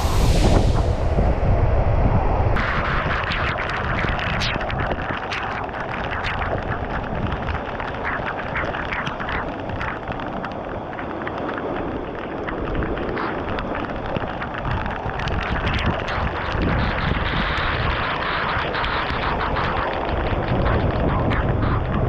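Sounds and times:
waterfall rushing: 0:00.0 - 0:01.2.

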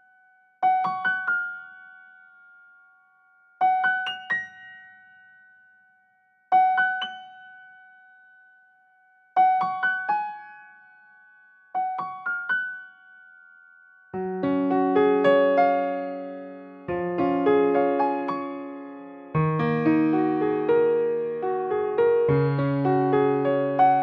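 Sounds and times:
piano-like keyboard phrases: 0:14.1 - 0:24.0.

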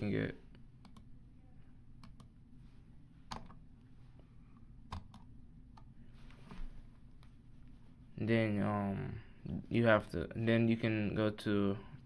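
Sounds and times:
faint low hum: 0:00.0 - 0:12.0
computer mouse clicks: 0:00.8 - 0:01.1, 0:02.0 - 0:02.3.

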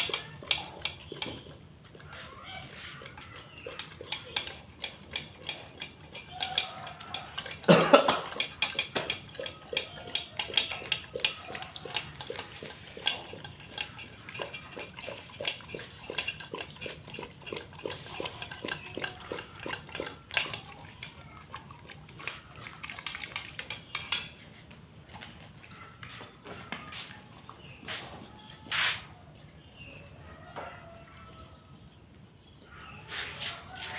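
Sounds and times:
metal pot and chain clinking: 0:00.0 - 0:26.4
dog slurping and chewing food: 0:00.0 - 0:33.9.

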